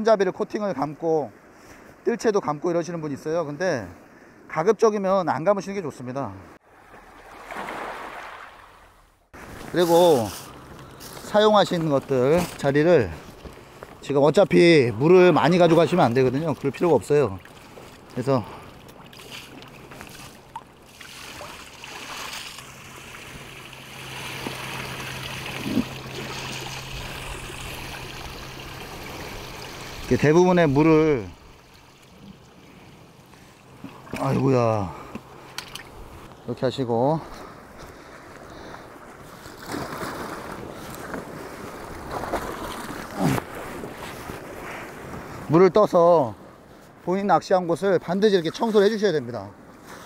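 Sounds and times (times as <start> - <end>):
water pouring onto rocks: 19.1 - 30.3.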